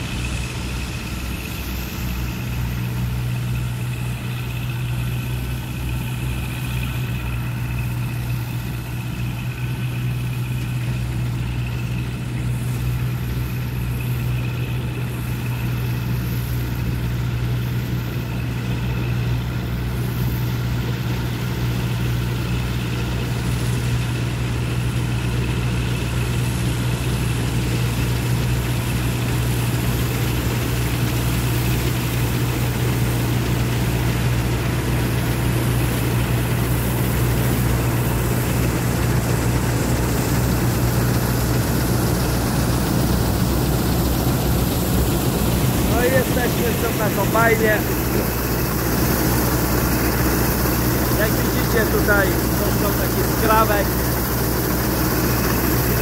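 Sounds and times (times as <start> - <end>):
combine harvester engine drone: 0.0 - 56.0
high whine: 29.9 - 56.0.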